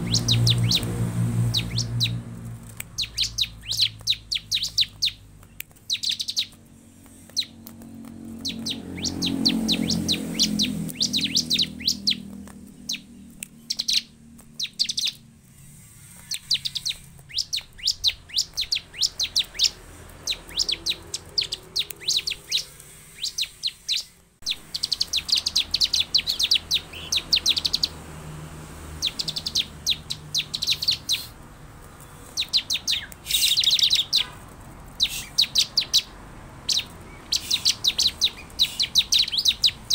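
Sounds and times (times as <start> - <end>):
low rumble: 0.0 - 5.3
bird chirping rapidly: 0.0 - 39.9.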